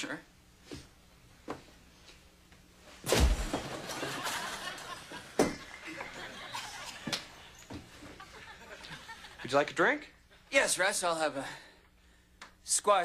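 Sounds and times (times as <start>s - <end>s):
thump of man dropping into chair: 3.0s - 3.9s
audience laughter: 3.7s - 9.5s.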